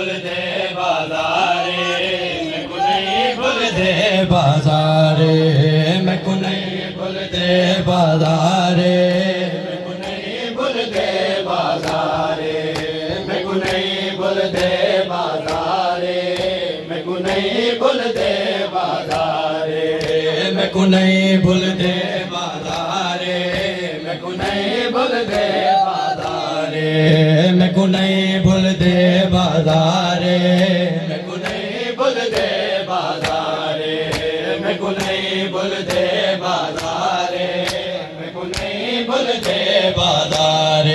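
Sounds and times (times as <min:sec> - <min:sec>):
men chanting a lament: 0:00.0 - 0:40.9
hands slapping chests: 0:10.0 - 0:20.5, 0:21.8 - 0:26.5, 0:30.6 - 0:40.6.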